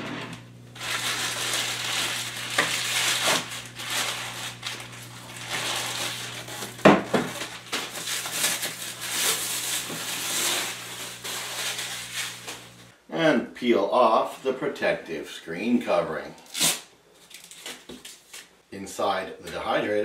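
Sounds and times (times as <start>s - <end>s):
plastic bag crinkling: 0.6s - 12.9s, 17.2s - 18.5s.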